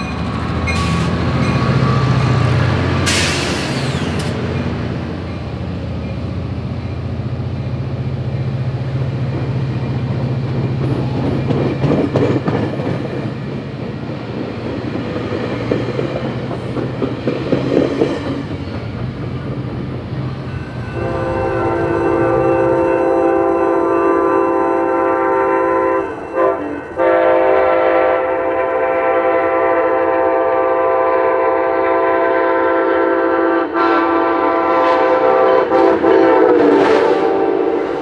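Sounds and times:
train wheels clattering on rails: 0.0 - 6.8, 7.6 - 23.1
diesel engine droning: 19.8 - 26.2
train air horn: 20.6 - 38.0.

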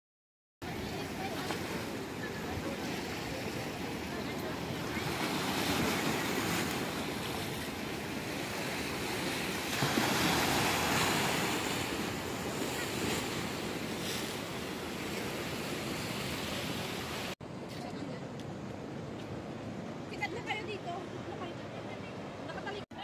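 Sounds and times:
sea waves breaking over rocks: 0.6 - 17.4.

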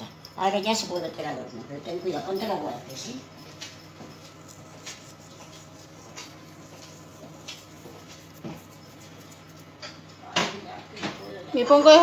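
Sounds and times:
steady low hum: 0.0 - 11.6.

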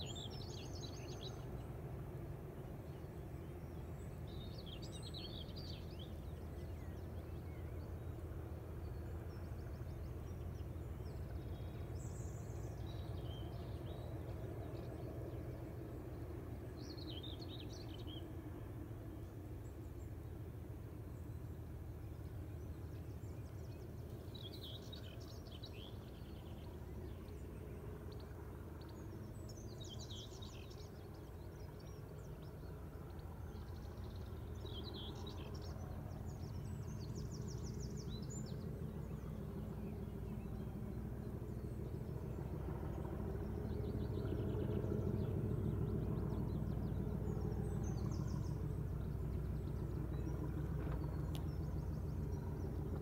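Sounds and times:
diesel locomotive engine drone: 0.0 - 53.0
birds chirping: 21.0 - 53.0.

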